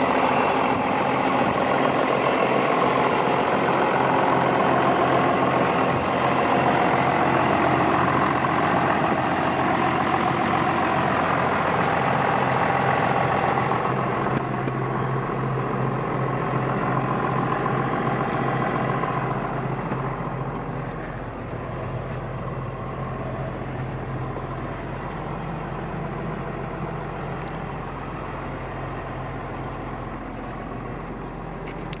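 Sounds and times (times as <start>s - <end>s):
tractor diesel engine idling: 0.0s - 32.0s.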